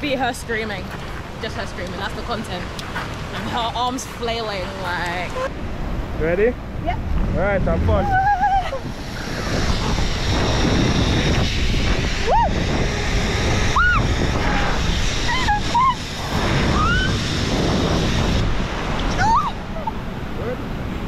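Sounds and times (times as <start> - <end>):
wind roaring over microphone: 0.0 - 21.0
person crying out: 8.0 - 8.9, 13.8 - 16.1, 19.2 - 20.0.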